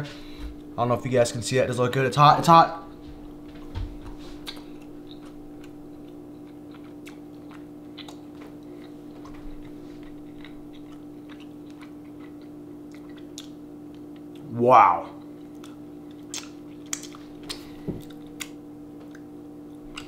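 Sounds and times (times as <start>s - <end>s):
steady low hum: 0.0s - 20.0s
wet mouth clicks chewing: 4.4s - 14.4s, 15.2s - 19.3s.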